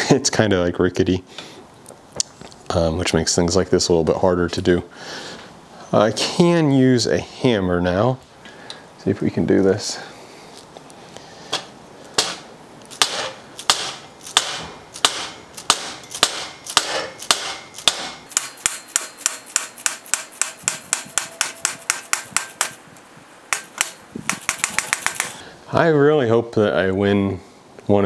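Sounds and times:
hammer striking metal tool: 0:12.2 - 0:12.4, 0:13.0 - 0:22.8, 0:23.5 - 0:25.4.

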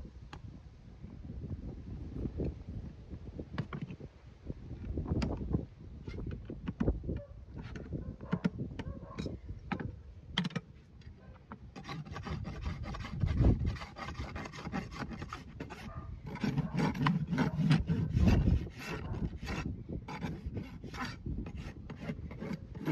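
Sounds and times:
rasp filing hoof: 0:11.8 - 0:22.9.

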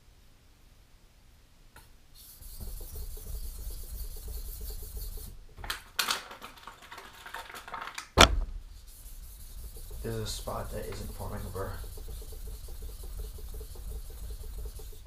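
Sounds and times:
knife scraping on whetstone: 0:08.9 - 0:15.0.

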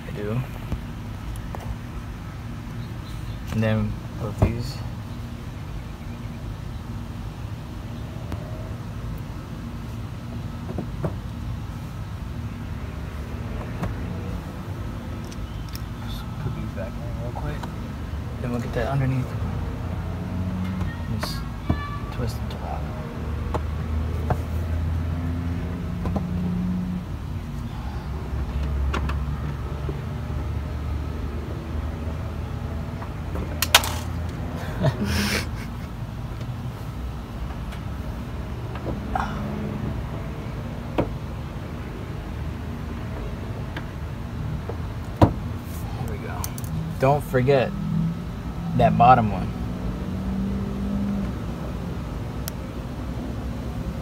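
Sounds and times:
low vehicle rumble: 0:00.0 - 0:54.0.

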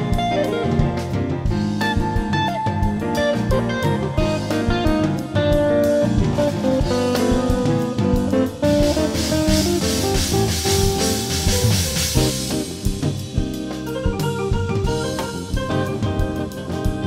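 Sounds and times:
bass guitar: 0:00.0 - 0:17.0
drum kit: 0:00.0 - 0:17.0
electric guitar lead notes: 0:00.0 - 0:17.0
cymbals: 0:06.0 - 0:14.0.

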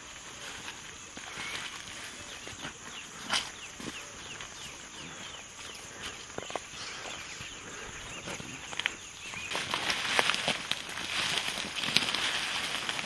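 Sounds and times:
faint chirping: 0:00.0 - 0:10.2
footsteps in dry grass: 0:00.0 - 0:13.0.

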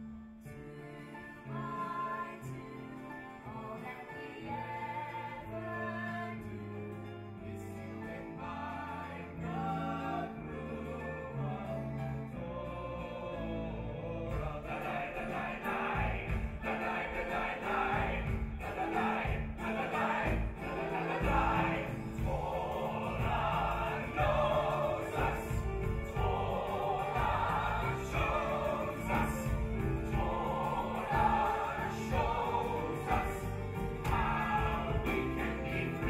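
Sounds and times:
men singing together: 0:08.2 - 0:36.0
instrumental accompaniment: 0:14.0 - 0:36.0.

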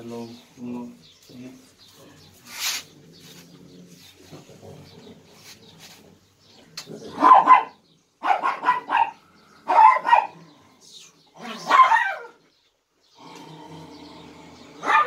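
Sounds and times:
dog barking: 0:07.1 - 0:10.4, 0:11.4 - 0:12.4, 0:14.8 - 0:15.0.

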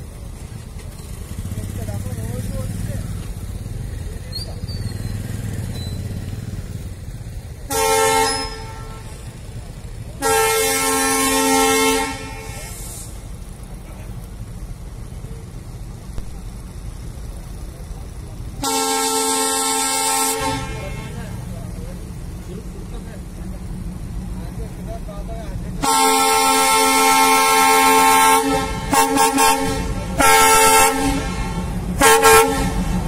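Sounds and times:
loud horn blasts: 0:07.6 - 0:09.4, 0:10.2 - 0:13.2, 0:18.6 - 0:21.5, 0:25.8 - 0:33.0
steady low rumble: 0:12.2 - 0:18.7.

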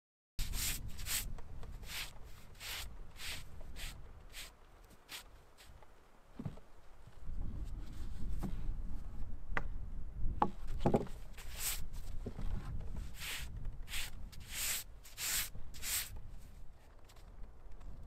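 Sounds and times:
gloved hands rubbing wood: 0:00.4 - 0:05.8, 0:11.4 - 0:12.0, 0:13.1 - 0:16.1.

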